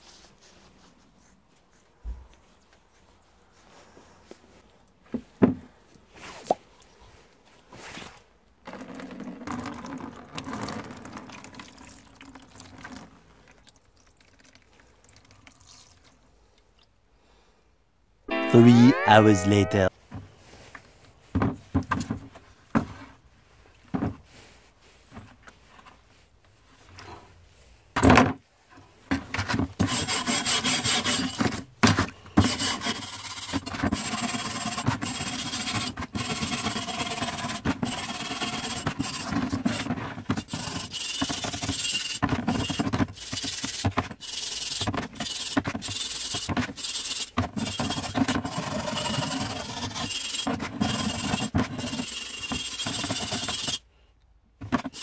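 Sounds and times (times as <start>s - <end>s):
scrubber rasping on metal blade: 43.2s - 53.8s.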